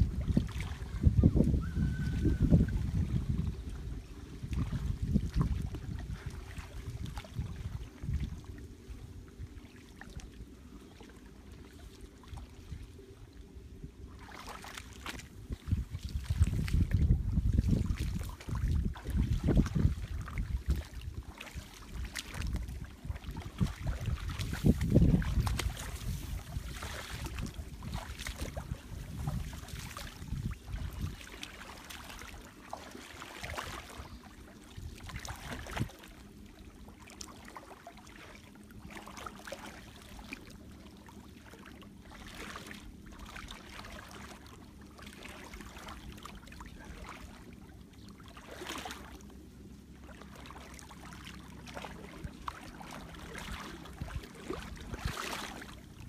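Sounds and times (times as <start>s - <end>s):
low rumble: 0.0s - 10.7s
water sloshing and splashing: 0.0s - 56.0s.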